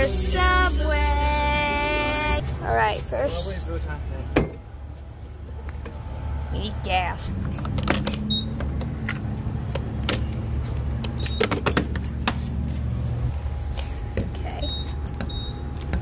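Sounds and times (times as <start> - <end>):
steady low hum: 11.9 - 16.0.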